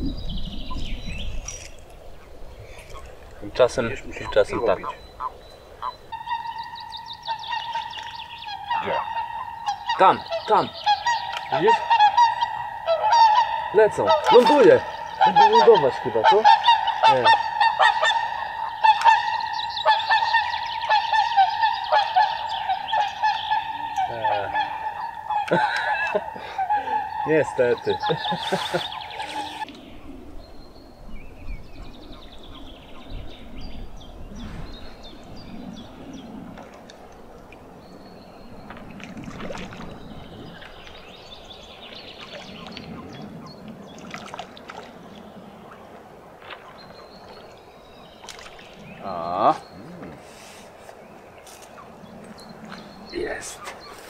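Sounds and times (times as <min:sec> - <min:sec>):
geese honking: 0:02.2 - 0:29.7
water sloshing and trickling: 0:36.5 - 0:50.2.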